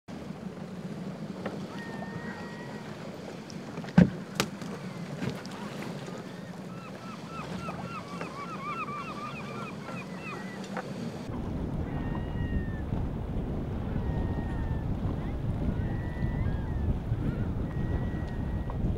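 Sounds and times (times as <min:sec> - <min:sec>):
boat engine running: 0:00.1 - 0:18.9
waves: 0:00.1 - 0:18.9
wind: 0:00.1 - 0:18.9.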